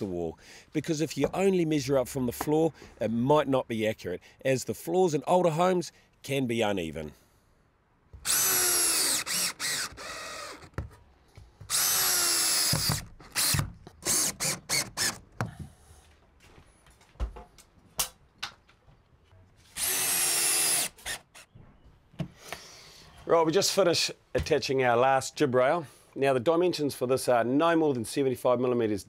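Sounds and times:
cordless drill motor whine: 0:08.2 - 0:10.8, 0:11.7 - 0:15.2, 0:19.8 - 0:20.9
drill trigger clicks: 0:08.2 - 0:10.8, 0:11.7 - 0:15.2.

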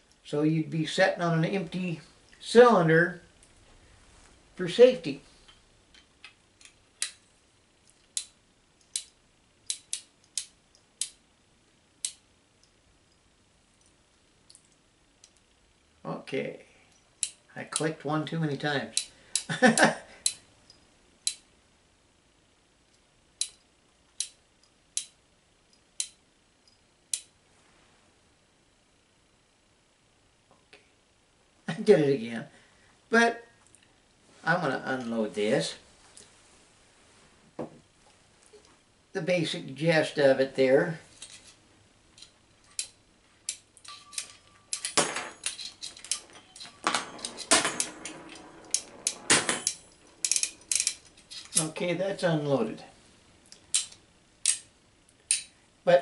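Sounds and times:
revolver metallic clicks: 0:20.2 - 0:21.5.

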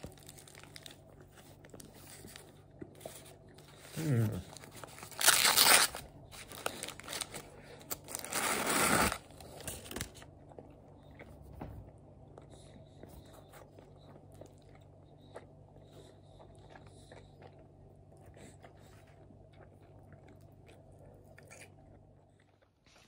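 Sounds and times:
food wrapper rustling and crinkling: 0:00.0 - 0:10.4.

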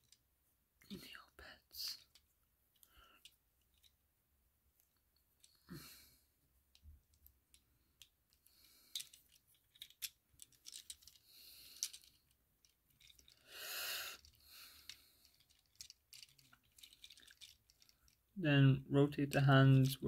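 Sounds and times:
soft hiss: 0:00.8 - 0:04.0.

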